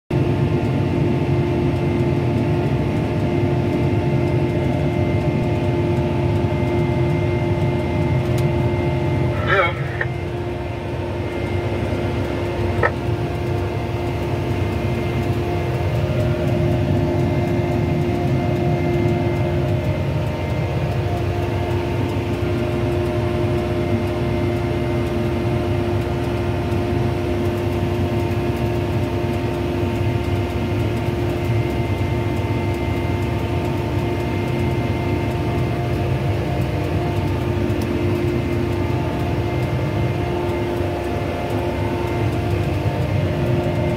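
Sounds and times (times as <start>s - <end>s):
constant whine: 0.1s - 43.9s
tractor engine droning: 0.1s - 43.9s
click: 8.2s - 8.5s.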